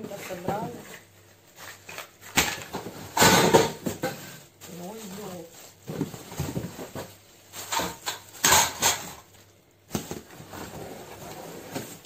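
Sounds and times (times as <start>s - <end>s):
plastic packaging crinkling: 4.4s - 12.0s.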